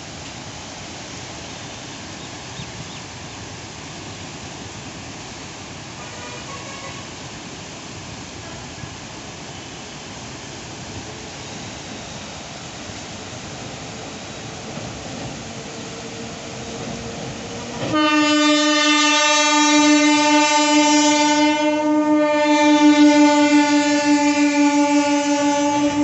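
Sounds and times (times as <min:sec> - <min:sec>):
river water rushing: 0:00.0 - 0:19.2.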